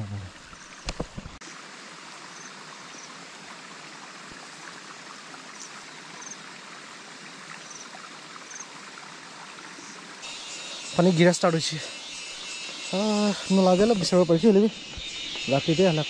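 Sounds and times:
steady rain hiss: 0.0s - 16.0s
faint high chirps: 10.2s - 16.0s.

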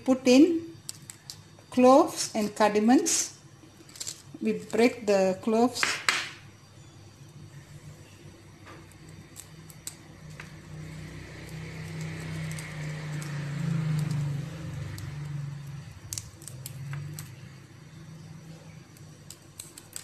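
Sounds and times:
low hum with hiss: 0.0s - 20.0s
pods cracking and dropping in bowl: 0.7s - 1.6s, 3.8s - 4.9s, 8.8s - 10.6s, 11.4s - 17.4s, 18.8s - 20.0s.

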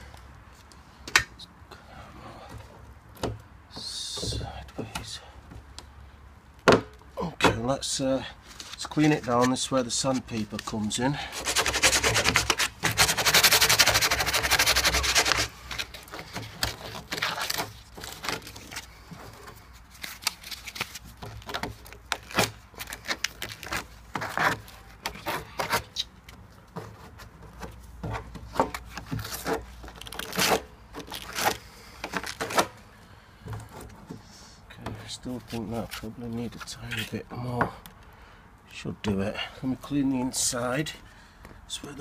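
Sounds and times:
sandpaper scratching plastic: 8.6s - 18.9s, 28.8s - 32.7s.

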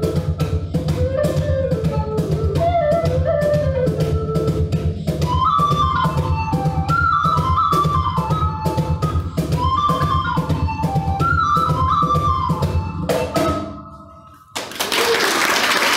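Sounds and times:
steady drum beat: 0.0s - 11.7s
flute playing folk dance tune: 0.0s - 14.5s.

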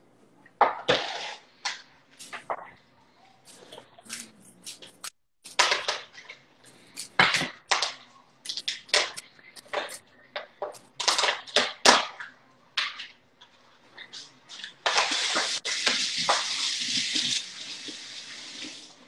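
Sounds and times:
spice grinder crunching: 3.5s - 5.9s.

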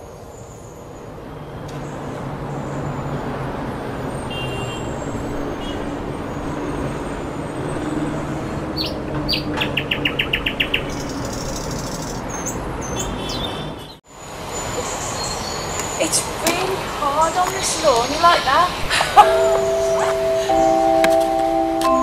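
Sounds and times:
songbirds chirping: 0.0s - 22.0s
traffic rumble: 0.0s - 22.0s
bird trill: 8.8s - 16.2s, 17.7s - 22.0s.

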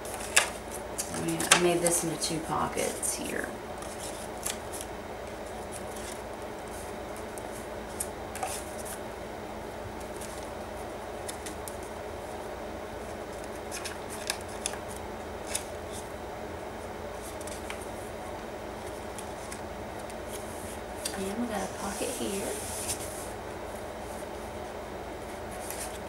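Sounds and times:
paper rustling and crinkling: 0.0s - 2.2s, 3.8s - 9.0s, 10.0s - 10.6s, 13.0s - 16.0s, 18.8s - 23.3s, 25.3s - 26.0s
low hum and hiss: 0.0s - 26.0s
crisp paper crackles: 3.8s - 9.0s, 25.5s - 26.0s.

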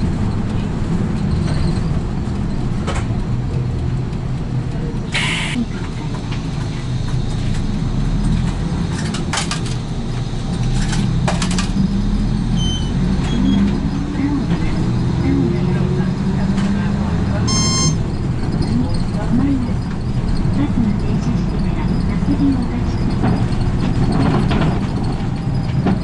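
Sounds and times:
bus diesel engine running: 0.0s - 26.0s
road noise: 0.0s - 26.0s
short hiss: 5.2s - 5.6s.

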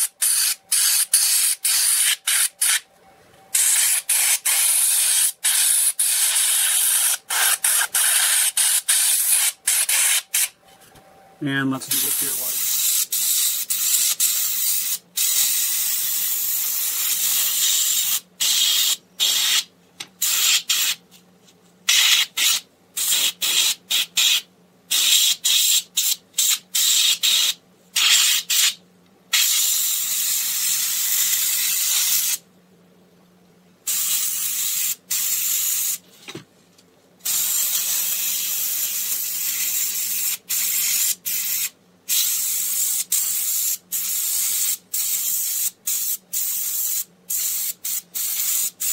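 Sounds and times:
airbrush hissing: 3.6s - 10.5s, 11.9s - 21.0s, 37.2s - 48.9s.

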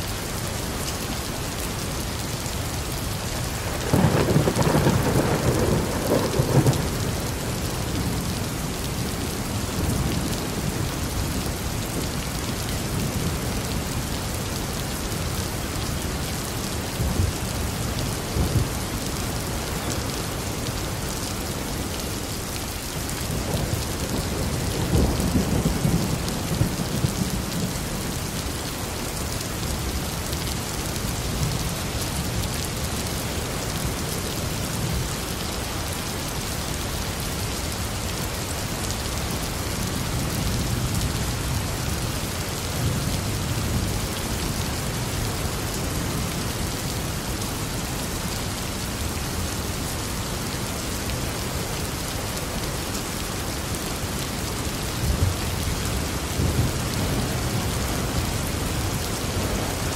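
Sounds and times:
steady rain: 0.0s - 59.9s
thunder rumbling: 3.6s - 8.5s.

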